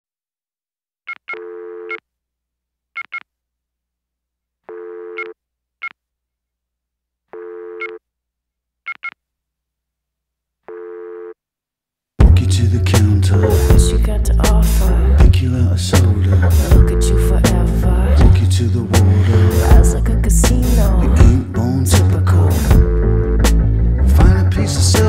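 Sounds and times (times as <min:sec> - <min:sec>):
buzzy low electronic tone: 0:22.4 - 0:24.4.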